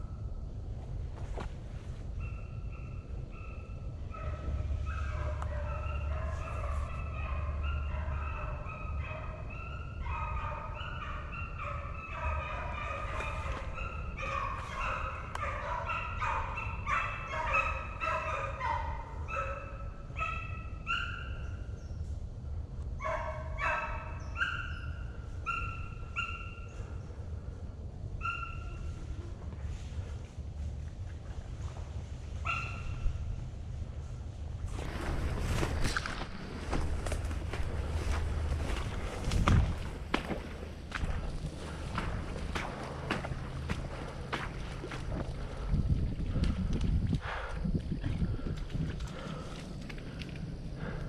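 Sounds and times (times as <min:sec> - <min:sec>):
hounds barking and baying: 0:02.2 - 0:21.6, 0:23.0 - 0:27.2, 0:28.2 - 0:30.0, 0:32.1 - 0:33.2, 0:34.8 - 0:45.7, 0:49.0 - 0:51.0.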